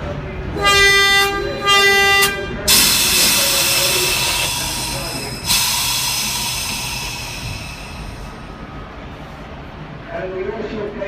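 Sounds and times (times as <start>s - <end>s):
compressed air hissing from brake valve: 2.7s - 8.6s.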